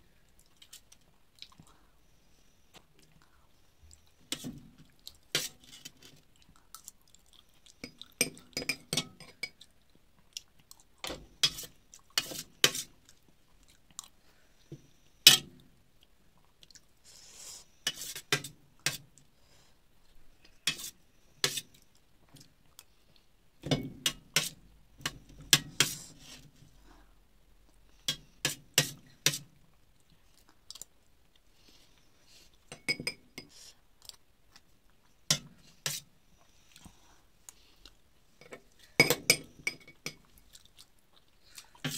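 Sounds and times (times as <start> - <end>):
chewing and mouth sounds: 0.3 - 1.8, 6.2 - 8.2, 40.3 - 41.8
spoon scraping on metal plate: 11.4 - 12.9.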